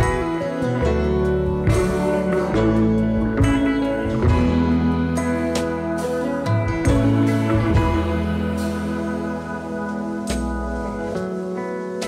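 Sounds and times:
soft instrumental music: 0.0 - 12.0.

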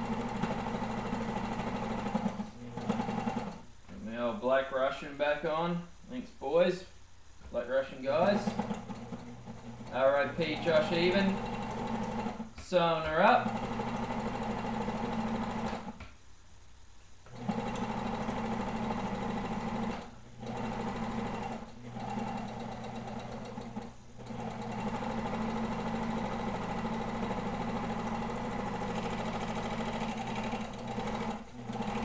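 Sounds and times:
overlock sewing machine running: 0.0 - 3.6, 8.2 - 12.5, 13.1 - 16.0, 17.3 - 32.0.

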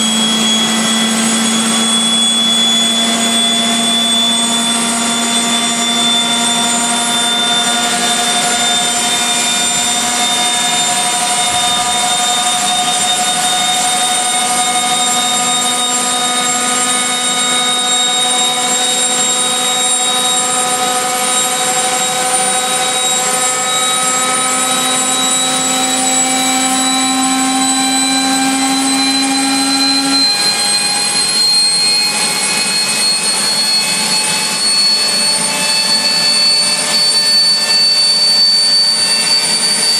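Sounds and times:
low drone: 0.0 - 39.9
turbine engine whine: 0.0 - 39.9.

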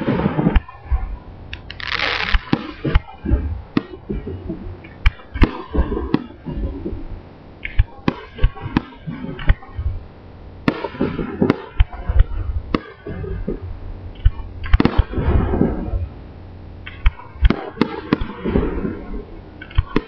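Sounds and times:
low rumbling booms: 0.0 - 20.0
firework shells bursting: 1.5 - 3.0
firework crackling: 1.5 - 4.0.

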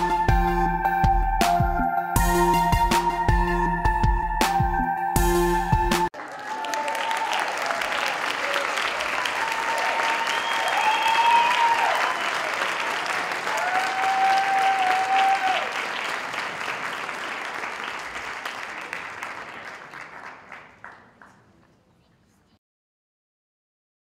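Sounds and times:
audience applauding: 6.1 - 21.7
high held calls from crowd: 6.2 - 16.1.

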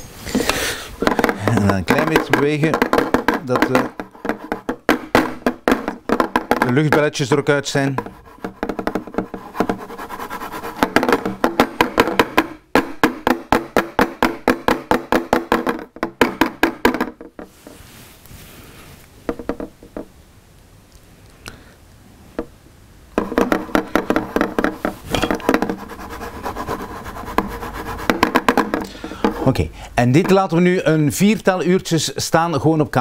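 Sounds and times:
baking dish knocking on countertop: 1.0 - 7.0, 10.8 - 17.4, 23.2 - 25.8.

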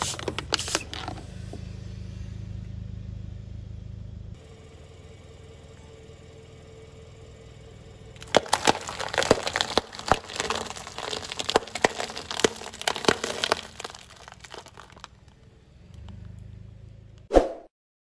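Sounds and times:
plastic cups crushed under tyre: 0.0 - 1.2, 8.2 - 15.4.

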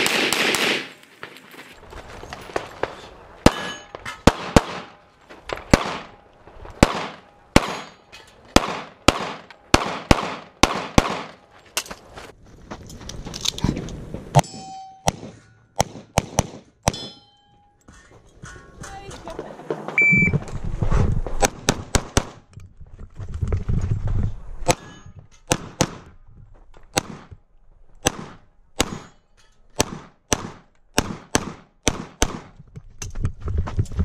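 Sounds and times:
pistol shots: 0.0 - 0.9, 3.4 - 5.0, 5.7 - 6.2, 6.8 - 11.4, 15.1 - 17.1, 28.0 - 29.1, 29.8 - 32.5
steel targets clanging: 3.4 - 4.3, 14.4 - 15.8, 16.9 - 19.4.

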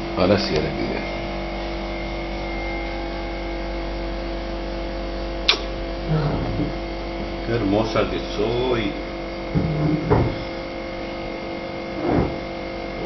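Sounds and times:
electrical hum: 0.0 - 13.0
sharp click: 5.5 - 5.7.

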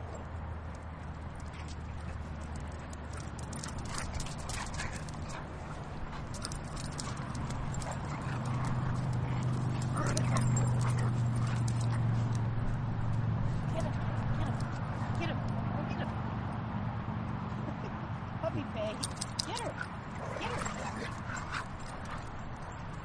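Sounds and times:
dog claws scrabbling on asphalt: 0.6 - 15.5.

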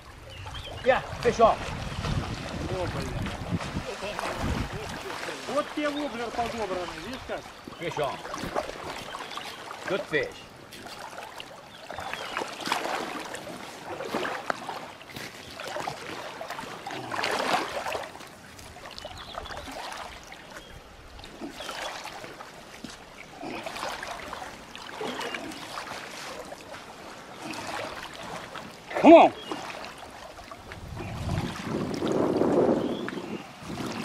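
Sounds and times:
river water rushing and splashing: 0.0 - 34.0.

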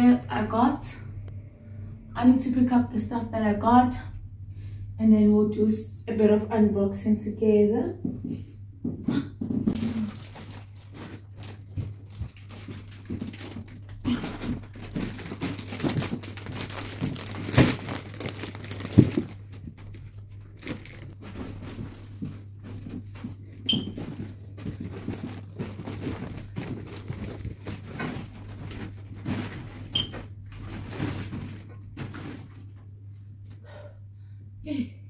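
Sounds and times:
shopping bags crinkling: 9.8 - 32.7.

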